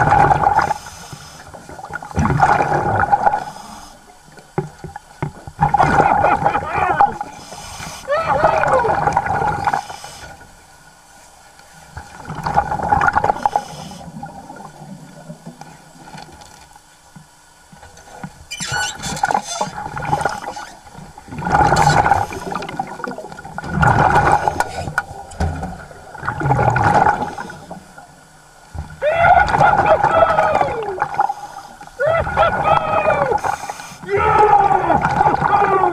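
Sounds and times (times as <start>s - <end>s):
churning water burst: 0.0s - 4.0s, 5.6s - 10.2s, 18.6s - 28.0s, 28.9s - 35.9s
underwater regulator bubbling: 18.6s - 27.8s.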